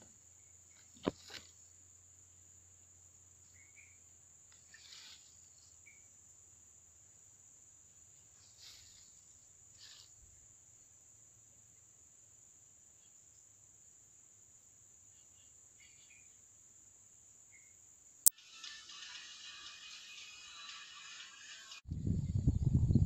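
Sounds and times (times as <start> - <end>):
insects droning: 0.0 - 21.8
soft rustles: 4.5 - 5.8, 8.2 - 10.3.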